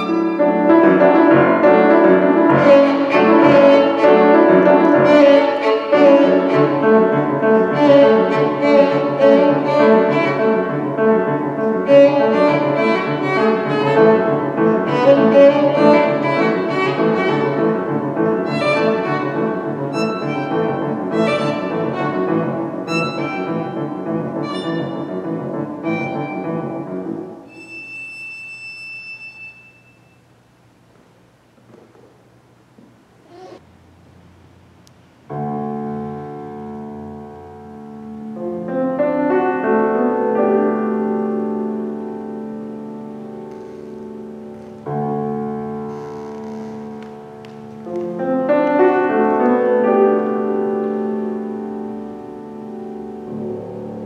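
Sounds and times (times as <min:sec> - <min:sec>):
pulsing piano accompaniment: 0:00.0 - 0:27.9, 0:35.3 - 0:45.9, 0:46.7 - 0:54.0
violin: 0:00.0 - 0:28.0.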